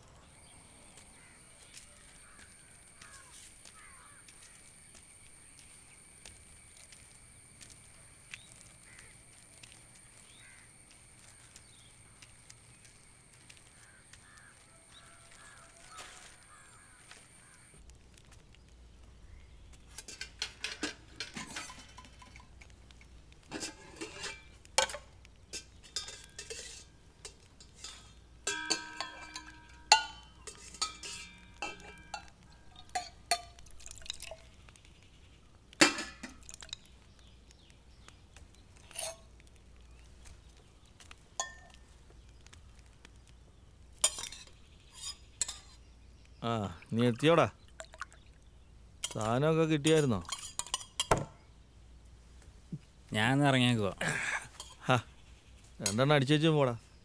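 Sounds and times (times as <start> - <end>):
steel utensils clinking: 19.9 - 22.6, 23.4 - 34.4, 35.8 - 36.8, 44.0 - 45.8, 49.0 - 51.2, 54.5 - 54.9.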